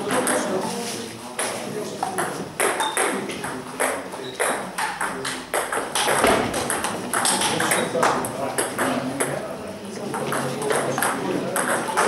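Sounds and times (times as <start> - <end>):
table tennis ball clicking: 3.8 - 7.9.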